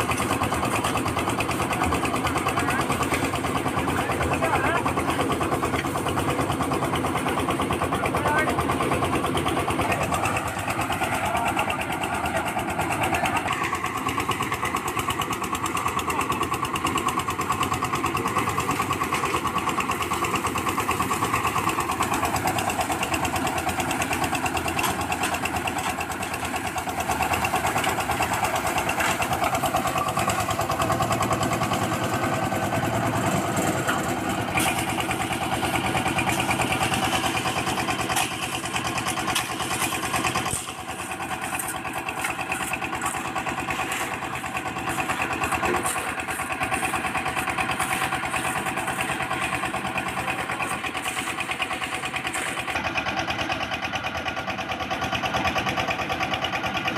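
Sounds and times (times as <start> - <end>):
concrete mixer engine running: 0.0 - 56.9.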